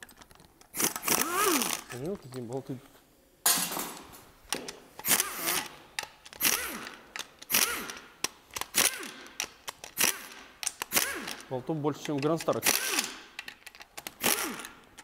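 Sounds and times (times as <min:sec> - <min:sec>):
power wrench whirring: 0:00.7 - 0:01.9, 0:05.0 - 0:11.5, 0:12.2 - 0:15.0.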